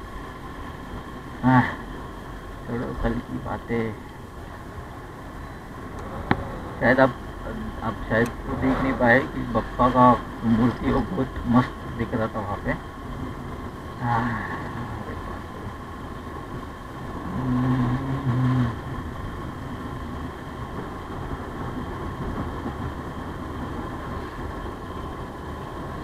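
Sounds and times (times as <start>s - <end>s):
loud low steady tone: 0.0s - 26.0s
wind and road noise: 0.0s - 26.0s
motorcycle engine running: 13.0s - 26.0s.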